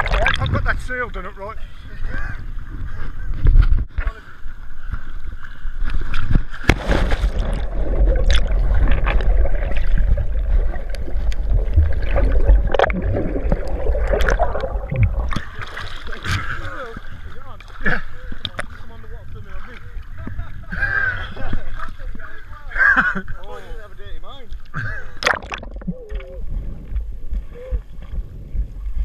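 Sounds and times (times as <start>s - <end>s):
muffled underwater water gurgling: 0.0s - 0.8s, 6.6s - 22.8s, 24.6s - 29.0s
heavy low rumble: 6.8s - 15.7s
small knocks and splashes: 25.2s - 26.3s.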